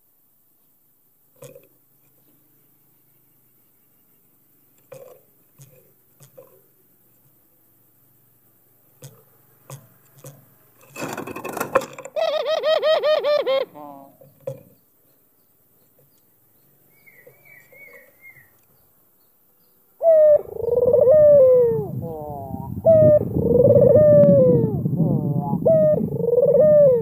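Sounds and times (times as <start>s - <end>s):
dove cooing: 12.1s - 14.8s, 16.9s - 18.6s, 20.0s - 27.0s
high chirps of small bird: 16.9s - 18.9s.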